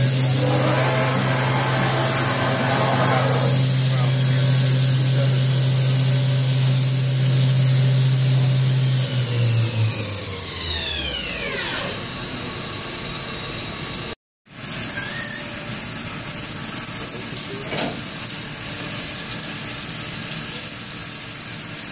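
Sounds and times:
machine spindle whining: 0.0s - 13.7s.

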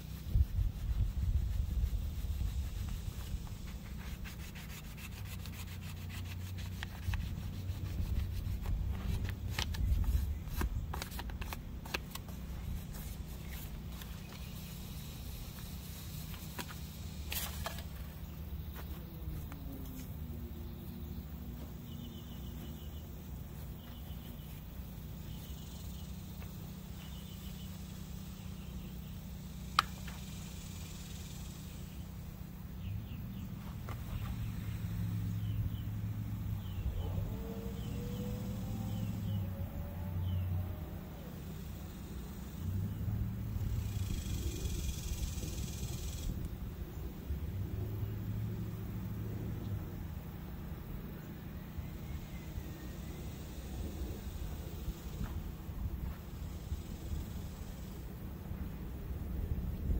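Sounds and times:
cloth rubbing on brass whistle: 0.0s - 17.8s.

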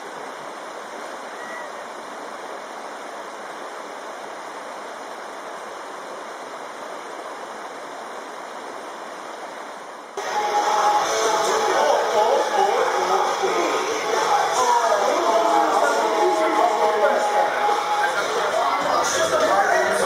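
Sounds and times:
stream flowing over stones: 0.0s - 20.0s
loud music: 10.2s - 20.0s.

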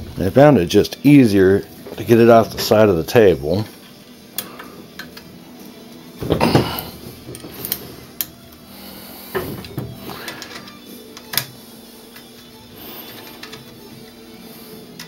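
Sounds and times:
light clicks and knocks of parts: 9.3s - 13.8s.

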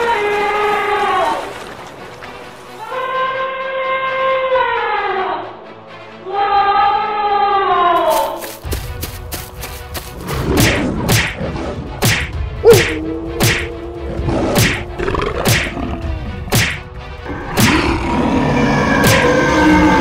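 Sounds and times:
whip-like swishing strikes: 10.3s - 13.7s, 14.6s - 15.7s, 16.5s - 16.9s.

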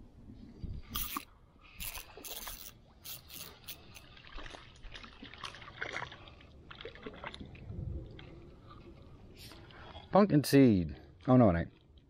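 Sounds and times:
water splashing and dripping: 0.9s - 10.1s.

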